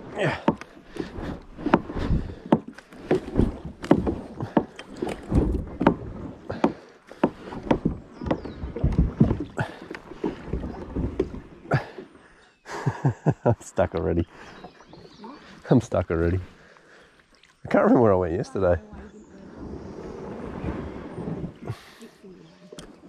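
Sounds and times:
paddle and hull knocking on sticks: 0:00.0 - 0:12.1
paddle splashes: 0:00.0 - 0:23.0.

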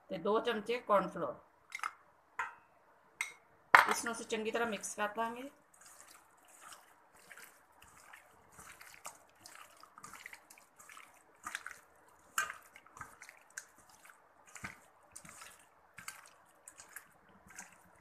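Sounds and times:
hands squishing wet marinade: 0:04.8 - 0:18.0.

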